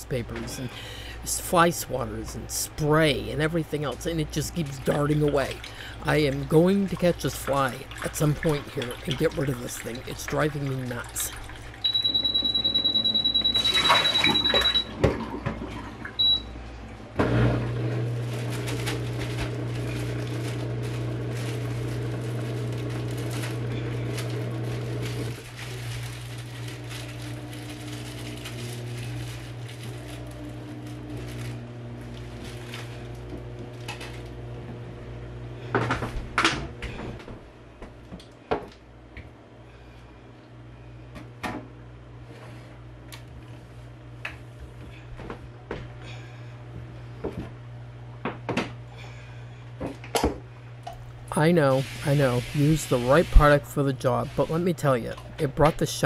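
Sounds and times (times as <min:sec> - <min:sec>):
dishwasher pump humming: 0:00.0 - 0:56.0
water pouring into tank: 0:04.7 - 0:11.9
long steady beep: 0:11.8 - 0:14.9, 0:16.2 - 0:16.5
short beep: 0:11.9 - 0:14.9.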